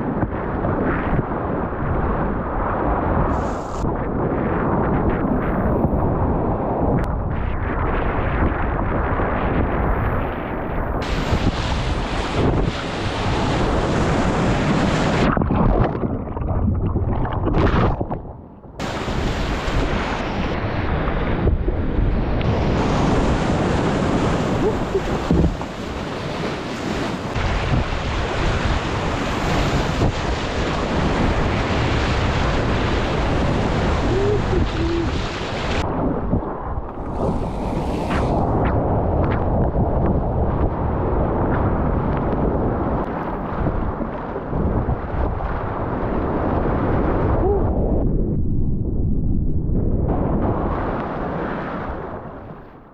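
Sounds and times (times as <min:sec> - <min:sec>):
wind buffeting microphone: 0:00.0 - 0:52.9
rushing whitewater: 0:22.5 - 0:35.8.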